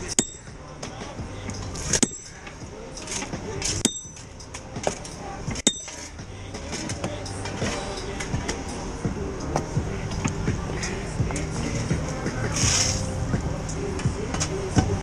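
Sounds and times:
hammer striking steel spike: 0.0s - 0.5s, 1.9s - 2.3s, 3.7s - 6.1s.

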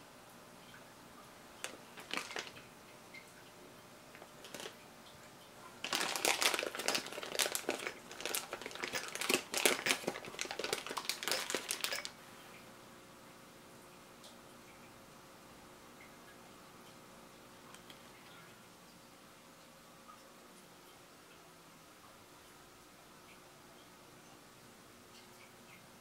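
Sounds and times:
plastic bag crinkling: 1.6s - 2.6s, 4.2s - 4.8s, 5.8s - 12.2s.

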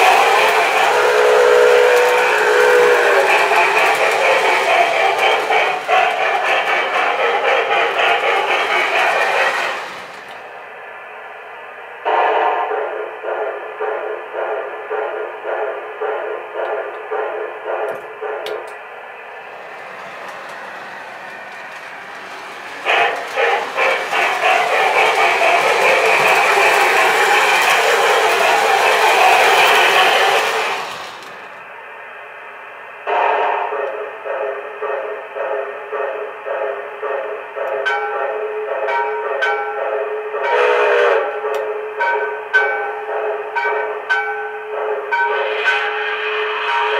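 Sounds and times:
steam hiss: 0.0s - 11.0s, 12.0s - 31.8s, 44.7s - 46.9s
steam locomotive chuffing: 0.0s - 46.9s.

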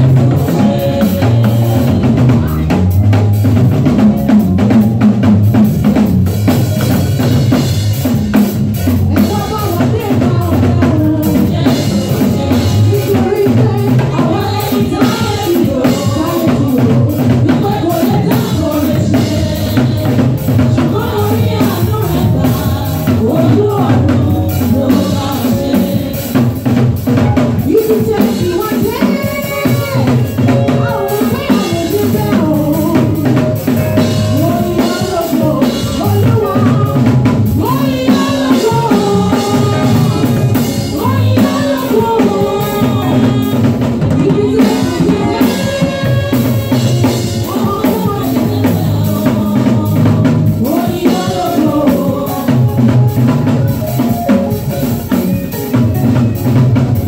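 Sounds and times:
drum kit playing: 0.0s - 57.0s
live band music: 0.0s - 57.0s.

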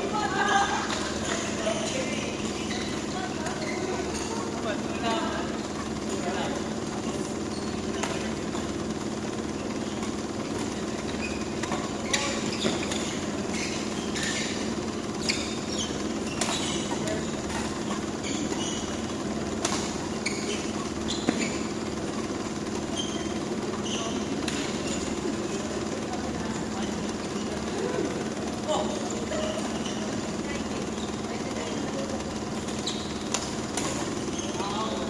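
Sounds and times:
fan hum: 0.0s - 35.0s
shoe squeaks on court: 0.8s - 25.9s, 29.0s - 35.0s
racket hitting shuttlecock: 7.8s - 9.3s, 15.8s - 21.8s, 24.4s - 25.1s, 32.6s - 34.2s.

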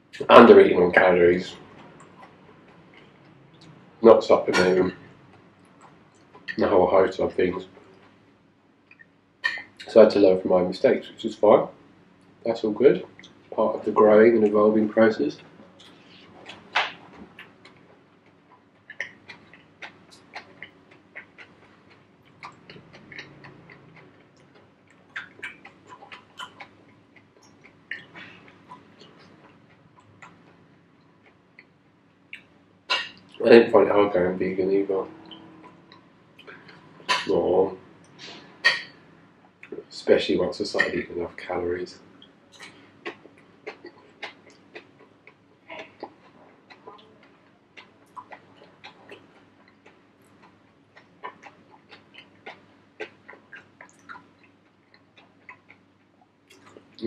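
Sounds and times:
person chewing food: 15.4s - 33.4s, 34.0s - 39.8s, 42.1s - 57.0s.

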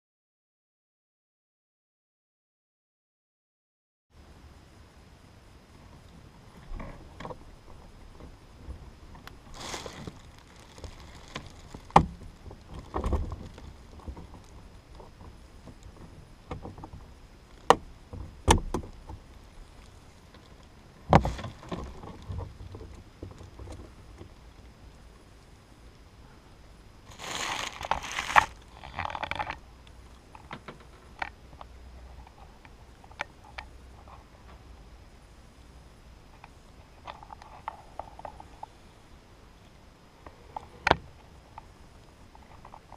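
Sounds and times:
scraping and rustling: 6.5s - 24.4s, 27.1s - 29.6s.

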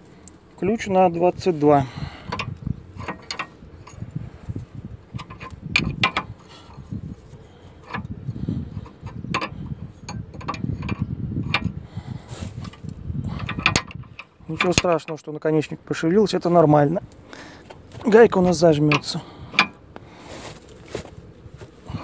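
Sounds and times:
wrench clicking on metal nut: 2.3s - 4.0s, 5.1s - 6.8s, 7.8s - 8.1s, 8.8s - 11.8s, 13.4s - 15.2s, 18.9s - 19.8s.

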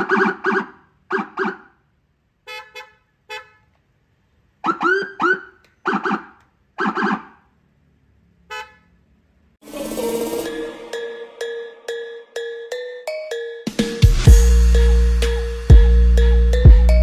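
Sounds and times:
siren horn-like blasts: 9.6s - 12.4s
siren rising chirps: 9.6s - 17.0s.

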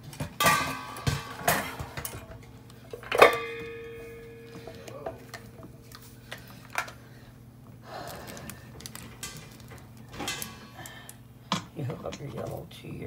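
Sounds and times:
steady low hum: 0.0s - 13.0s
hands handling hoses and fittings: 1.9s - 7.0s.

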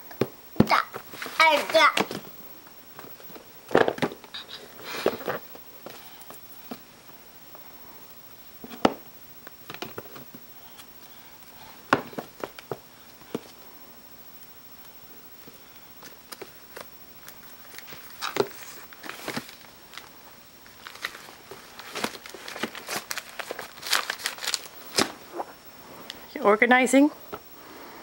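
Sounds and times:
books clattering into plastic bin: 3.0s - 4.2s, 18.2s - 19.6s, 20.8s - 25.2s.

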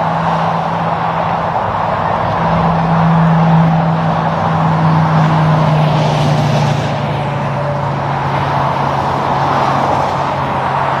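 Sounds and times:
truck engine drone passing: 0.0s - 11.0s
tyre noise on road: 0.0s - 11.0s.

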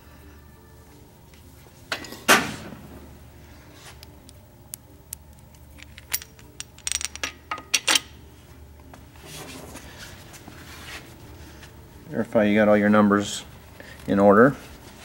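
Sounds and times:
metal clicks and clinks of bolts: 5.3s - 8.1s.

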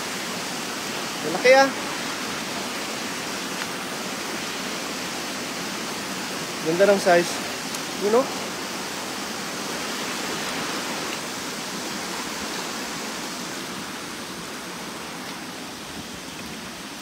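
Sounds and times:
river water rushing over stones: 0.0s - 17.0s.

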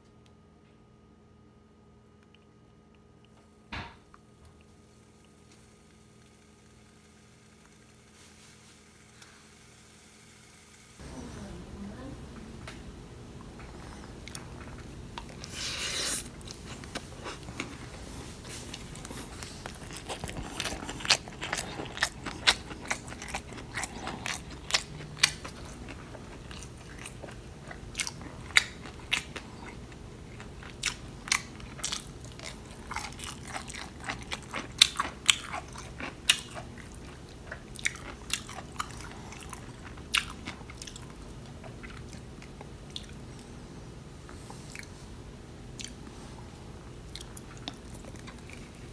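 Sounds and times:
person chewing and crunching food: 13.4s - 43.6s, 44.2s - 48.9s.

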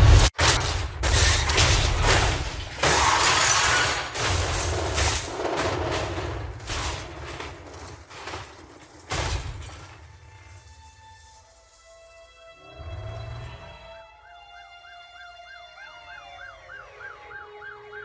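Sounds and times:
car crashing and tumbling: 0.0s - 11.5s
soft sustained music tones: 10.0s - 18.0s.

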